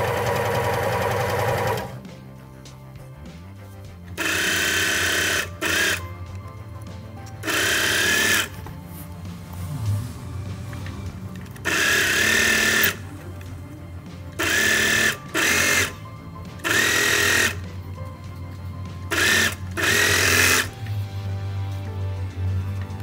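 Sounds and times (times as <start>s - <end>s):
serger sewing machine stitching: 0.0s - 2.1s, 4.2s - 6.1s, 7.4s - 8.6s, 9.7s - 13.4s, 14.0s - 17.7s, 19.1s - 20.8s.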